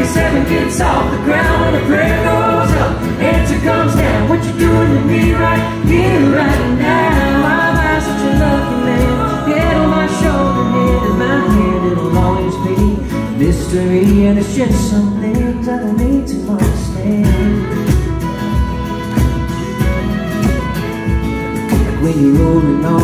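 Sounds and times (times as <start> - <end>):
person singing: 0.0 - 18.0, 21.8 - 23.0
keyboard: 0.0 - 23.0
strummed acoustic guitars: 0.0 - 23.0
fiddle: 17.4 - 23.0.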